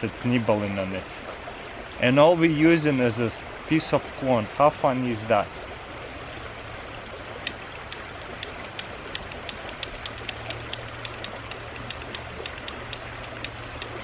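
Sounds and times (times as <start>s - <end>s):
small stream flowing: 0.0s - 14.0s
faint sharp ticks: 7.4s - 14.0s.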